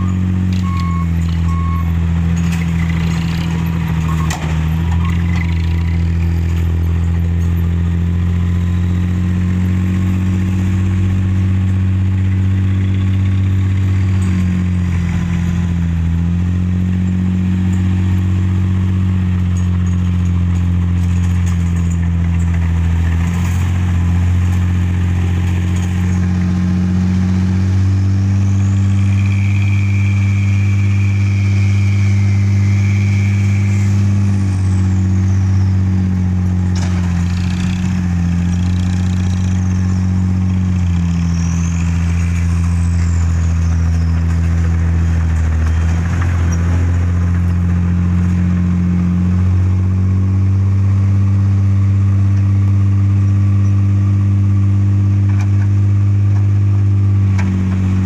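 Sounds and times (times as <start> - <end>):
heavy diesel engines running: 0.0 - 58.0.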